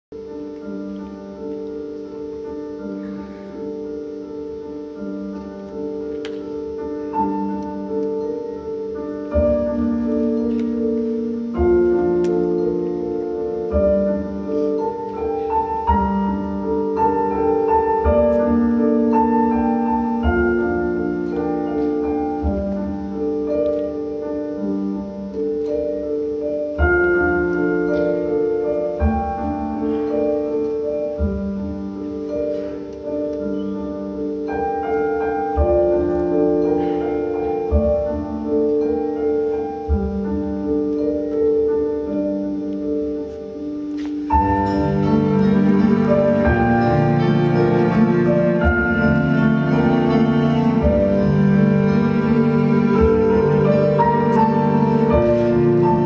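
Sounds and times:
slow piano chords and melody: 0.2 - 56.0
deep piano bass notes: 44.3 - 56.0.

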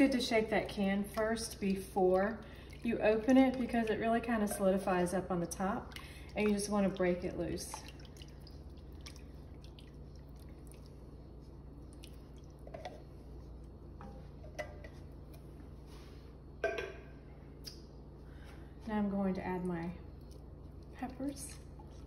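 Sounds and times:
coconut milk dripping into soup: 0.0 - 13.9.

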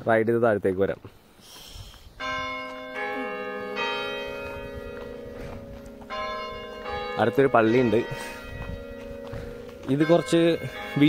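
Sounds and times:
church bells ringing: 2.2 - 11.0.

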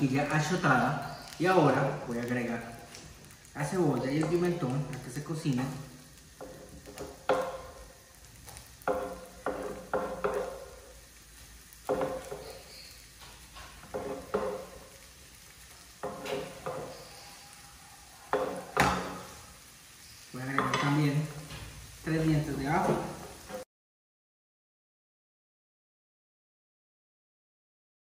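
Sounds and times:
faint sizzle of vegetables frying: 0.0 - 23.7
utensils knocking on board and pan: 6.2 - 11.0, 11.8 - 15.0, 15.9 - 17.4, 18.2 - 19.4, 20.5 - 21.7, 22.7 - 23.6.

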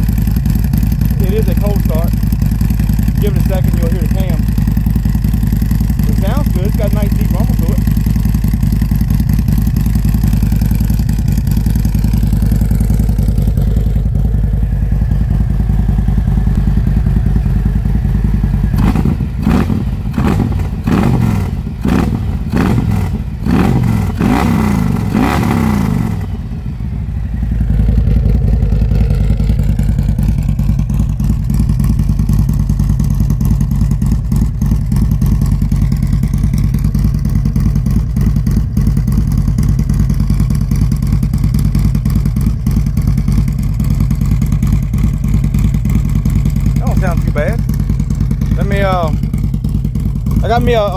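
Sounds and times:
motorcycle engine idling: 0.0 - 50.9
motorcycle engine revving: 0.0 - 50.9.

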